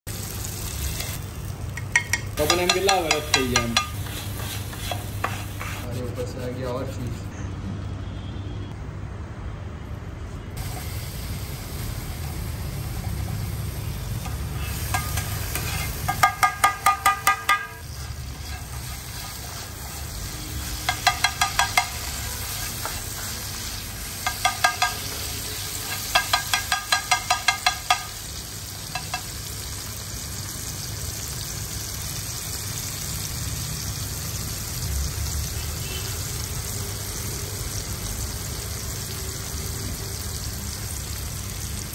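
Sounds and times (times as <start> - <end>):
sauce sizzling in oil: 0.1 - 5.9, 10.6 - 41.9
metal spatula striking griddle: 1.8 - 5.8, 14.2 - 20.0, 20.6 - 23.3, 24.1 - 28.2, 28.9 - 29.4.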